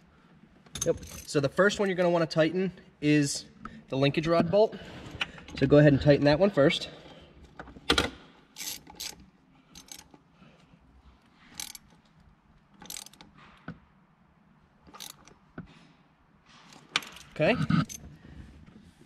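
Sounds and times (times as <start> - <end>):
hand ratchet clicking: 8.6 - 9.2, 9.8 - 10.1, 11.6 - 11.9, 12.8 - 13.3, 14.9 - 15.3.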